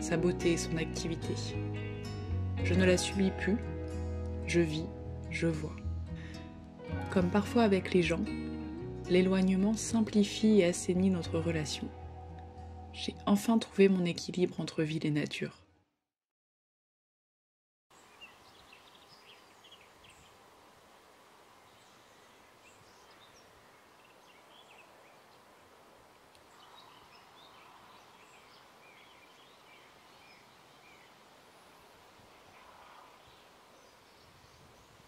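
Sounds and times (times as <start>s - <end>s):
small birds chirping: 17.9s - 20.5s, 21.5s - 25.6s, 26.2s - 35.0s
steady background hiss: 18.0s - 35.0s.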